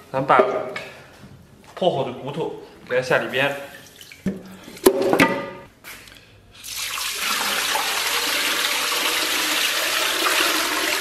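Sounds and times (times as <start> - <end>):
water pouring into a pot: 6.6 - 11.0.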